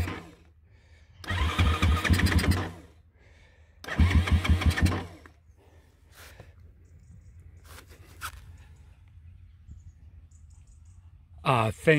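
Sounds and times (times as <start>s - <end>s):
engine cranking without catching: 0.0s - 3.1s, 3.8s - 5.6s.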